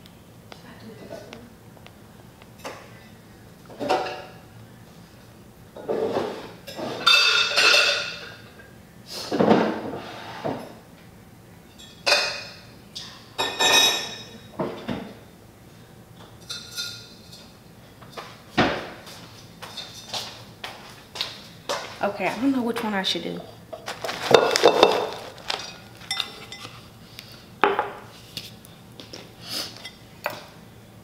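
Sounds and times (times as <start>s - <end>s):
household objects clattering: 23.8s - 26.7s.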